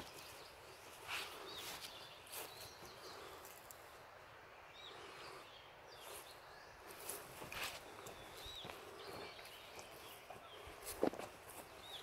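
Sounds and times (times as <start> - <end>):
small birds chirping: 0.0 - 12.0
soft footsteps: 6.0 - 12.0.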